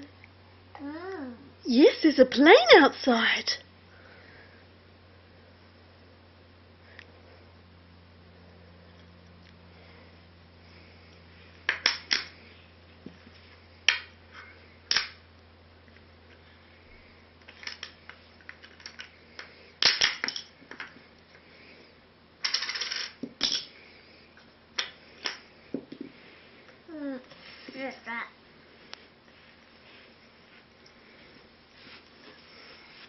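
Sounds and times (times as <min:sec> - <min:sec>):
wooden toy pieces clacking: 0:11.7 - 0:12.3, 0:14.9 - 0:15.2, 0:17.5 - 0:20.9, 0:22.4 - 0:23.7
wooden pieces rattling: 0:17.5 - 0:20.9, 0:22.4 - 0:23.7.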